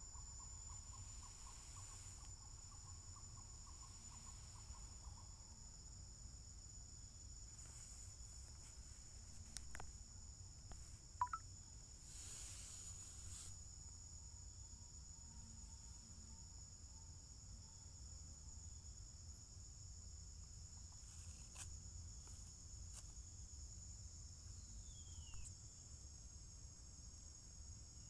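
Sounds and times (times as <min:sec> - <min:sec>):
high-pitched insect drone: 0:00.0 - 0:07.0, 0:11.1 - 0:19.8.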